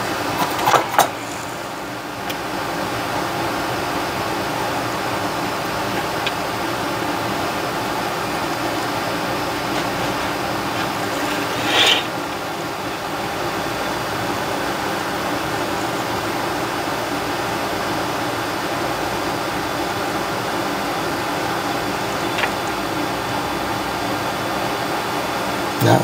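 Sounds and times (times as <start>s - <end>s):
fan whirring: 0.0s - 26.0s
short hiss: 11.1s - 12.3s.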